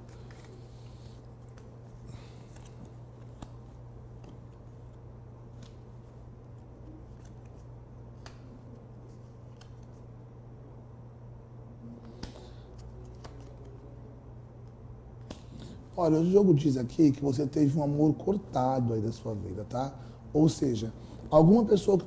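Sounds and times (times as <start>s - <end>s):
playing cards clicking and snapping: 0.0s - 4.9s, 5.5s - 10.0s, 12.0s - 13.9s, 15.2s - 15.8s
steady low hum: 0.0s - 22.0s.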